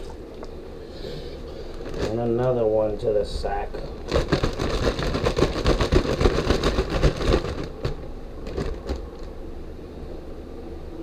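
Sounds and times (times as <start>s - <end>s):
plastic bag crinkling: 1.6s - 2.5s, 4.0s - 9.3s.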